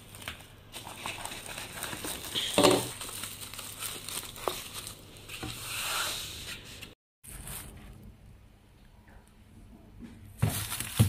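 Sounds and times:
cling film crinkling: 0.0 - 5.4.

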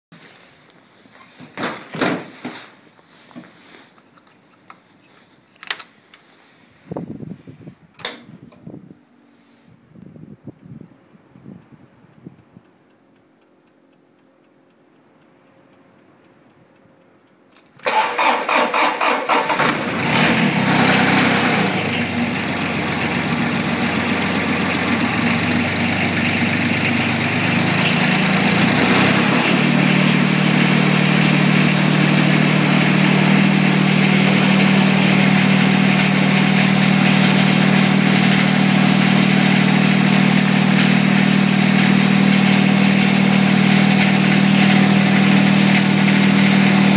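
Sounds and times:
starter motor cranking: 17.7 - 39.4
diesel engine running: 17.8 - 46.9.

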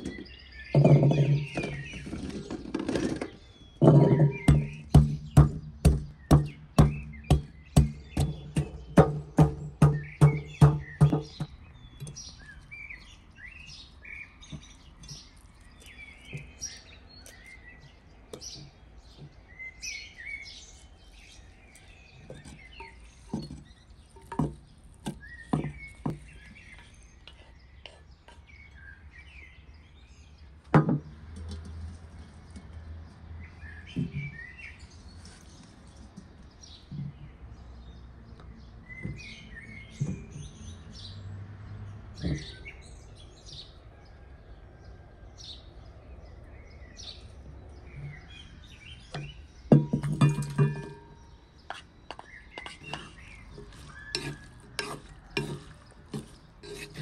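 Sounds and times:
small birds chirping: 0.0 - 57.0
kitchenware knocking: 0.8 - 2.0, 3.8 - 11.5, 49.1 - 51.2.

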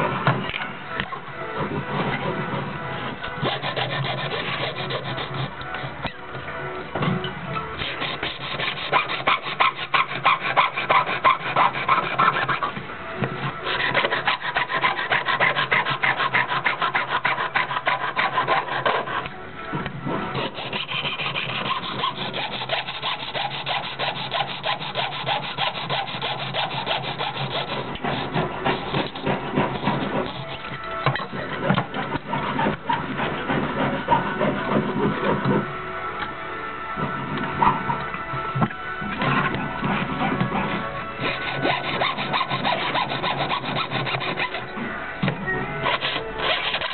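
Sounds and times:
saw cutting thin metal: 3.4 - 6.0, 7.8 - 12.7, 13.6 - 19.3, 20.3 - 34.1, 41.2 - 44.7, 45.8 - 46.9.

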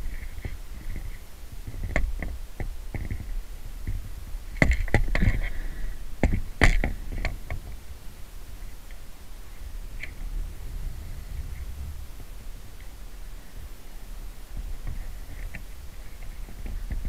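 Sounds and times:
low rumble: 7.8 - 16.6.

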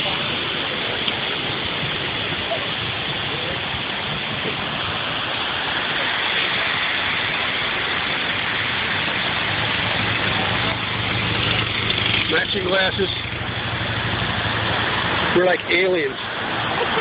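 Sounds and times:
steady rushing noise: 0.0 - 17.0
motorcycle engine running: 6.7 - 15.8.

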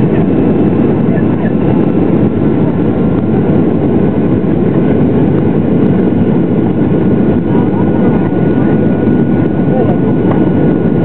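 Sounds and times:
airflow noise: 0.0 - 11.0
jet engines rumbling in cabin: 0.0 - 11.0.

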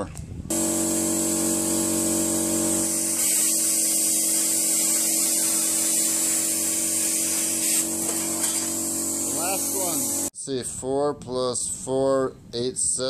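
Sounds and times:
plasma cutter hissing: 0.5 - 10.3.

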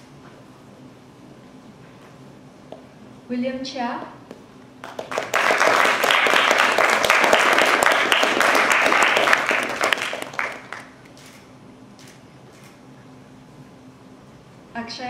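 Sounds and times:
audience applauding: 4.8 - 11.1.

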